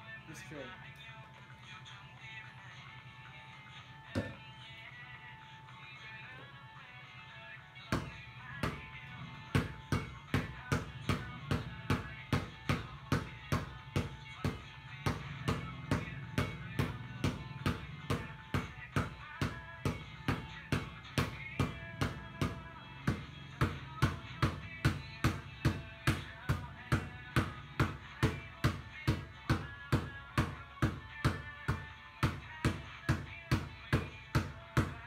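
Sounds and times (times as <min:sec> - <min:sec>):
soft background music: 0:00.0 - 0:35.0
basketball bouncing on tiled floor: 0:04.0 - 0:04.6, 0:07.8 - 0:35.0.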